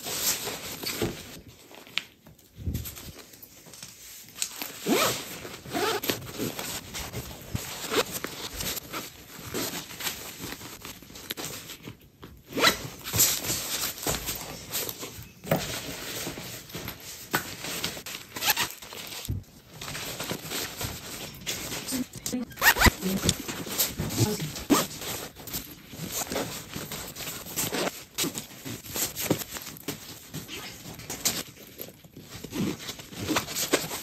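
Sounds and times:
fabric rustling: 0.0 - 34.0
zippers zipping and unzipping: 4.8 - 6.8, 12.5 - 12.8, 18.4 - 18.8, 22.4 - 25.0.

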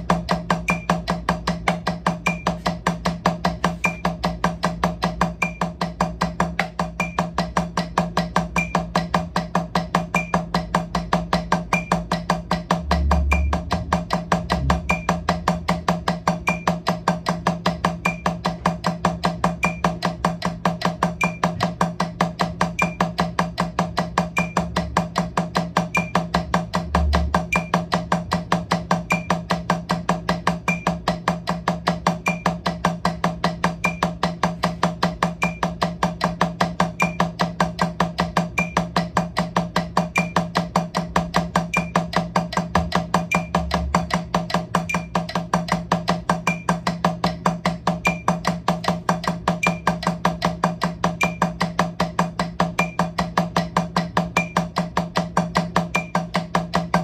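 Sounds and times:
drumsticks tapping practice pad: 0.0 - 57.0.

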